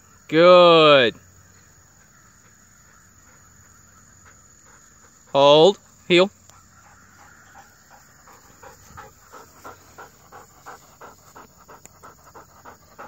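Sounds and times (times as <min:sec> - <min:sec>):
dog panting hard: 0:02.4 - 0:05.4, 0:06.6 - 0:13.0.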